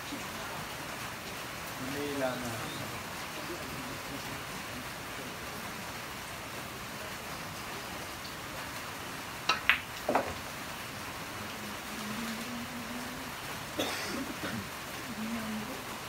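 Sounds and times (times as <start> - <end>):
steady hiss: 0.0 - 16.0
ball clacking on ball: 9.5 - 10.4
ball dropping into pocket: 9.5 - 10.4
cue striking ball: 9.5 - 10.4.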